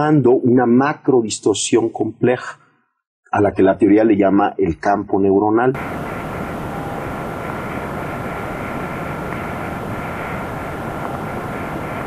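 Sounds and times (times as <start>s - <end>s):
steady rumbling noise: 5.8s - 12.0s.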